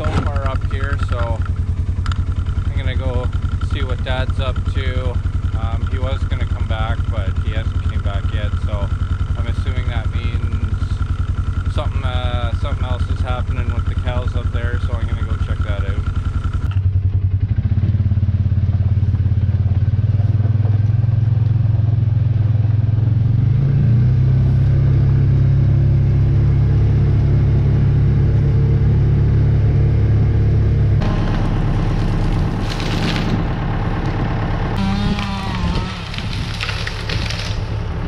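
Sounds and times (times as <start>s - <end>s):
tractor engine: 0.0s - 38.0s
utility vehicle engine running: 0.0s - 38.0s.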